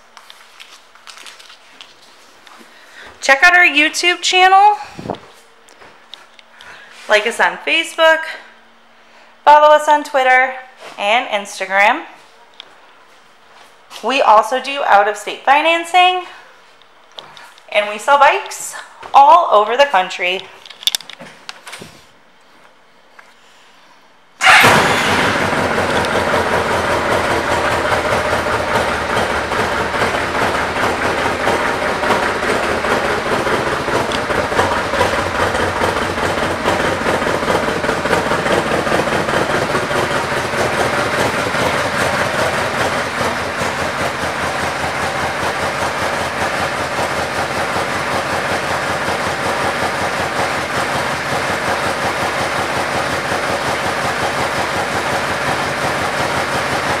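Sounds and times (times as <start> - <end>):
motorcycle engine idling: 24.4 - 57.0.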